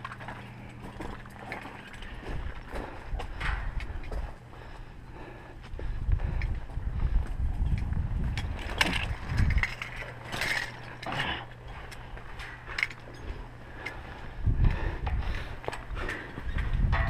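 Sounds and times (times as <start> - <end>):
steady low hum: 0.0 - 17.0
low rumble: 1.8 - 17.0.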